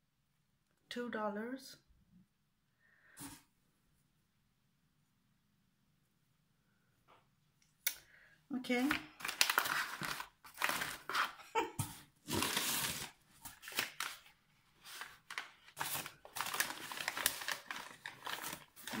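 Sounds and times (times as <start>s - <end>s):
packing paper crinkling: 8.7s - 11.5s, 12.2s - 19.0s.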